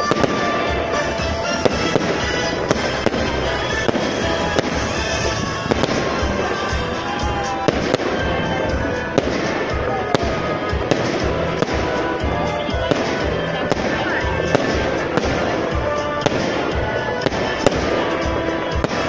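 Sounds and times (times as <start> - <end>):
fireworks bursting: 0.0 - 19.0
music playing: 0.0 - 19.0.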